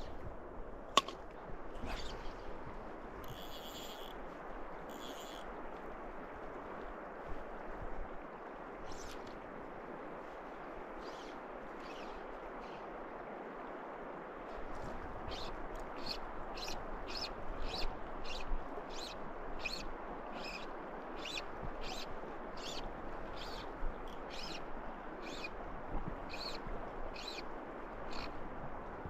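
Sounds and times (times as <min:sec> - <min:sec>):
flowing river: 0:00.0 - 0:29.0
small bird chirping: 0:21.2 - 0:22.0.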